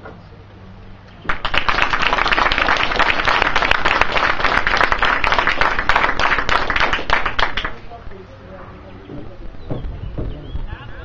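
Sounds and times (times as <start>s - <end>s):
audience applauding: 1.3s - 7.8s.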